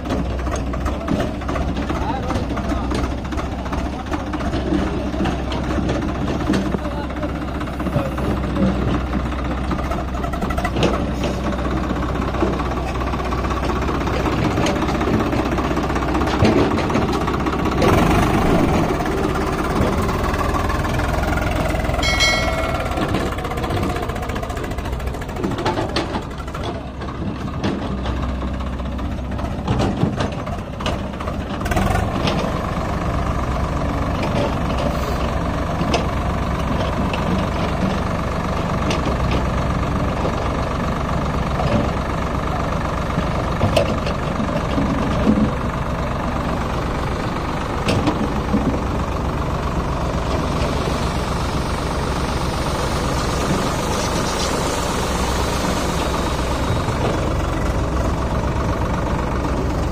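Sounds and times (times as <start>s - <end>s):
tractor diesel engine under load: 0.0s - 59.9s
brief high-pitched tone: 22.0s - 23.5s.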